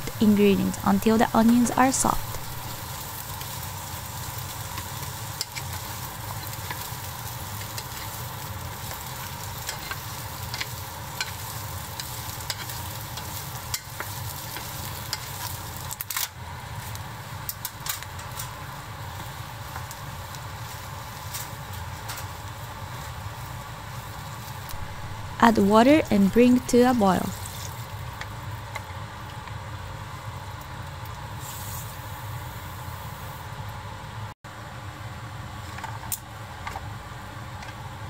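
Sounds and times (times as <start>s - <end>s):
vegetables sizzling in oil: 0.0s - 33.5s.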